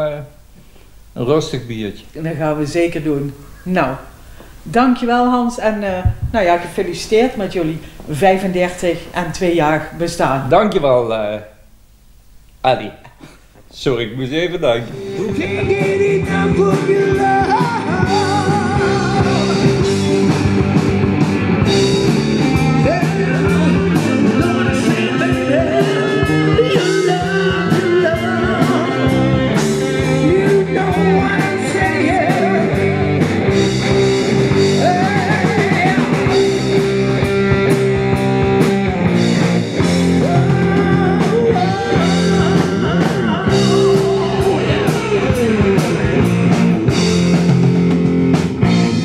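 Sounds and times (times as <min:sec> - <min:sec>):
drum kit: 0:05.8 - 0:11.0, 0:12.8 - 0:49.0
keyboard: 0:14.4 - 0:49.0
man singing: 0:14.6 - 0:20.1, 0:22.4 - 0:36.6, 0:40.0 - 0:47.0
electric guitar: 0:14.8 - 0:49.0.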